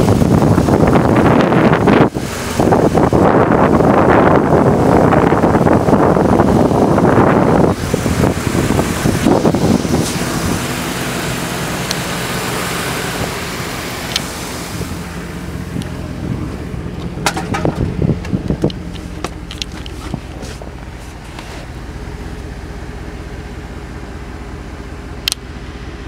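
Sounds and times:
wind buffeting microphone: 0:00.0 - 0:21.9
truck engine idling: 0:00.0 - 0:26.0
sharp clicks and knocks: 0:17.0 - 0:21.6.

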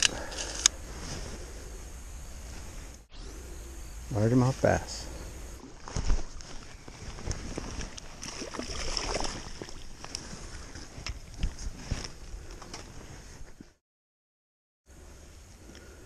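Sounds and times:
fishing gear handling rustle: 0:05.7 - 0:13.7
water splashing: 0:07.9 - 0:10.1.

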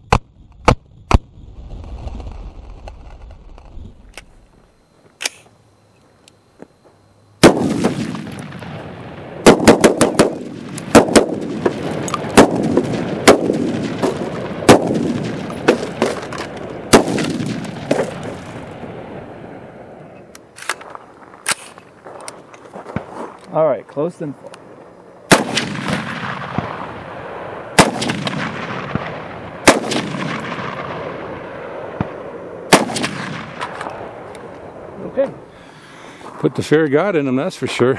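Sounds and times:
gunshots with echo: 0:07.4 - 0:08.8, 0:09.4 - 0:18.8, 0:25.3 - 0:33.8.

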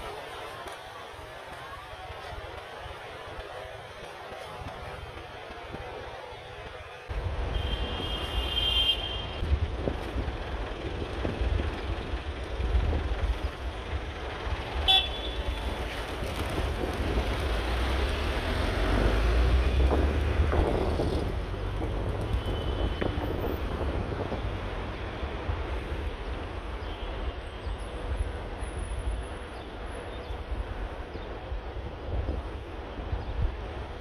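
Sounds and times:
road traffic rumble: 0:00.0 - 0:34.0
car horn toot: 0:07.5 - 0:09.4, 0:14.8 - 0:15.4.

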